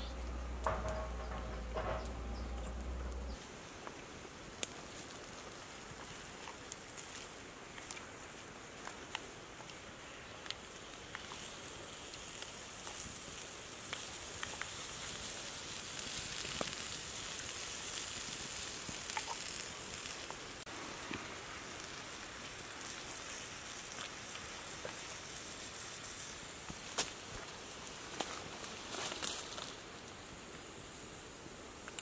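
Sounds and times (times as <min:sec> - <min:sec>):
shellfish sizzling on a hot plate: 0:03.3 - 0:32.0
small pops and crackles: 0:03.8 - 0:32.0.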